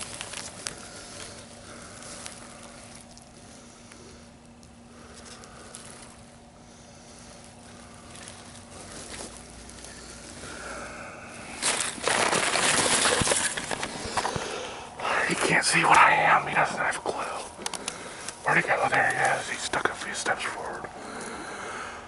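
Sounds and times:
scraping against clothing and grass: 0:00.0 - 0:04.2, 0:05.0 - 0:15.6.

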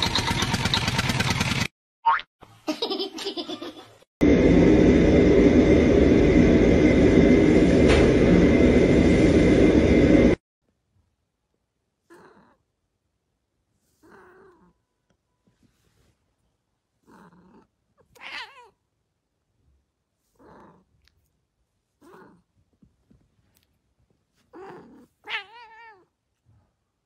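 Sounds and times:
cat crying: 0:17.1 - 0:18.8, 0:24.5 - 0:26.1.

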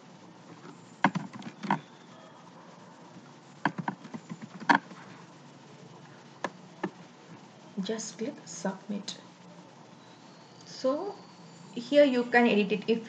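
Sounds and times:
keyboard keystrokes: 0:01.0 - 0:01.8, 0:03.6 - 0:05.0
mouse clicks: 0:03.6 - 0:04.9.

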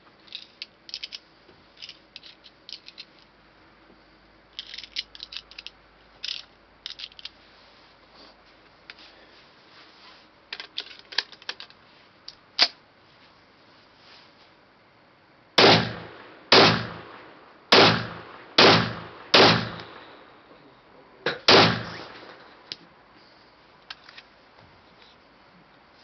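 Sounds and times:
cartridges clicking into magazine: 0:00.3 - 0:01.2, 0:01.8 - 0:03.2, 0:04.6 - 0:07.3, 0:17.8 - 0:20.2
sharp metallic click of gun: 0:15.6 - 0:20.2, 0:21.3 - 0:22.5.

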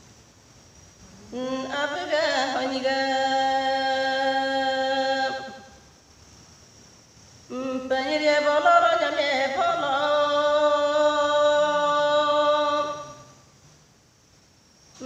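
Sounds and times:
woman singing unaccompanied: 0:01.1 - 0:05.8, 0:07.5 - 0:13.4.

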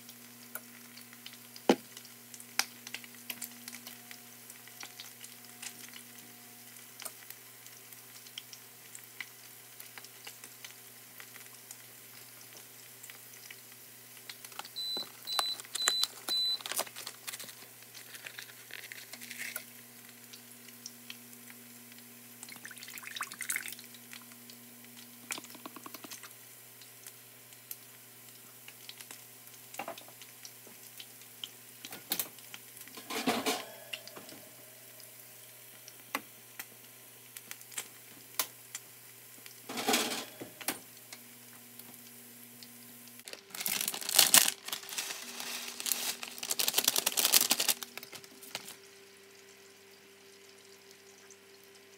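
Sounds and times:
butter crackling in a frying pan: 0:00.0 - 0:33.0, 0:35.0 - 0:39.9, 0:40.8 - 0:51.9
appliance beeps: 0:14.8 - 0:16.8.

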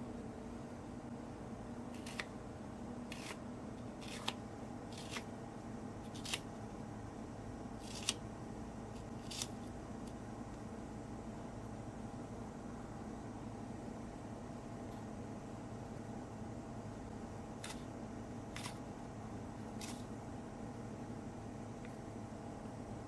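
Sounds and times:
steady background hum: 0:00.0 - 0:23.0
knife slicing onion on cutting board: 0:01.9 - 0:02.3, 0:03.1 - 0:05.3, 0:06.1 - 0:06.5, 0:07.8 - 0:08.2, 0:09.0 - 0:09.6, 0:18.5 - 0:18.8.

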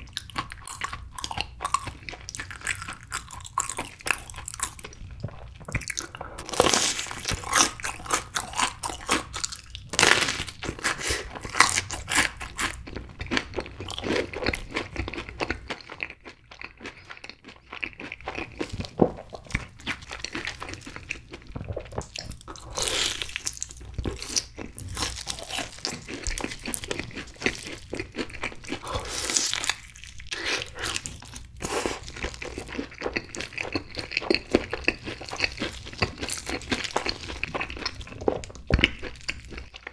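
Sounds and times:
person chewing crunchy food: 0:00.0 - 0:39.9.

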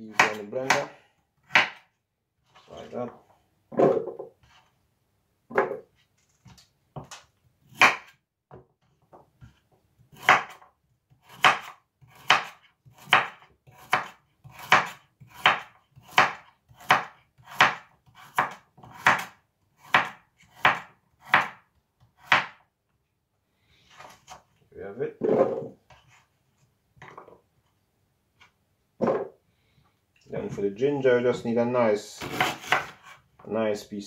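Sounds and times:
knife slicing carrot on board: 0:00.1 - 0:00.9, 0:01.5 - 0:01.8, 0:07.7 - 0:08.1, 0:09.4 - 0:10.6, 0:11.2 - 0:22.6, 0:32.2 - 0:33.2.

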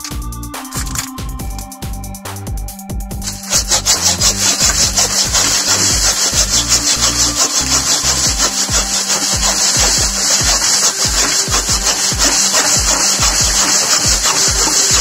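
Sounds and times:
background music with a beat: 0:00.0 - 0:15.0
hand saw cutting branch: 0:03.2 - 0:15.0.

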